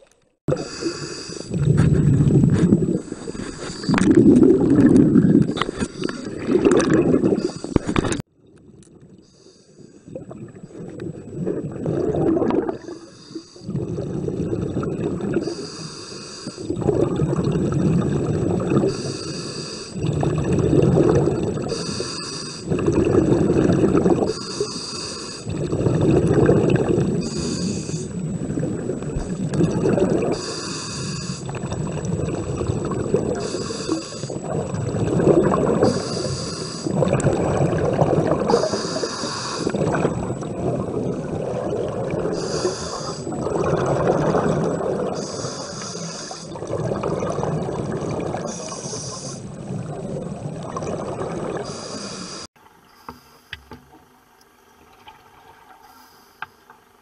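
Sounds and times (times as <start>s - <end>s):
regulator inhale hiss: 0.5s - 1.6s, 3.0s - 4.0s, 7.4s - 8.0s, 9.2s - 10.1s, 12.8s - 13.7s, 15.4s - 16.7s, 18.8s - 20.0s, 21.7s - 22.8s, 24.2s - 25.5s, 27.2s - 28.2s, 30.3s - 31.6s, 33.4s - 34.4s, 35.8s - 37.0s, 38.5s - 39.8s, 42.3s - 43.4s, 45.2s - 46.6s, 48.5s - 49.4s, 51.6s - 53.7s, 55.8s - 56.6s
exhaled bubbles rushing: 0.5s - 9.2s, 10.1s - 13.0s, 13.6s - 15.5s, 16.6s - 19.1s, 20.0s - 21.8s, 22.7s - 24.4s, 25.4s - 30.5s, 31.3s - 39.0s, 39.6s - 45.4s, 46.5s - 52.5s
small underwater clicks: 29.0s - 49.4s.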